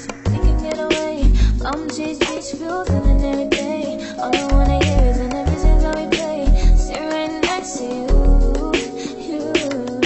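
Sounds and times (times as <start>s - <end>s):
song with deep bass and drums: 0.0s - 10.0s.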